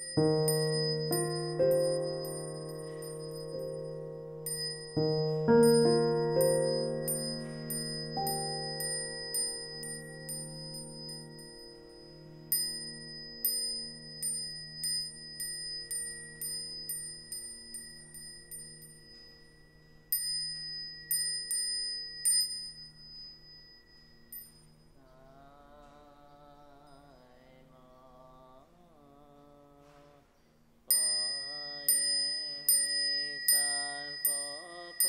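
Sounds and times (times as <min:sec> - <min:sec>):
small high-pitched bell strikes: 0:00.0 - 0:25.1, 0:30.9 - 0:35.0
person chanting: 0:25.0 - 0:35.0.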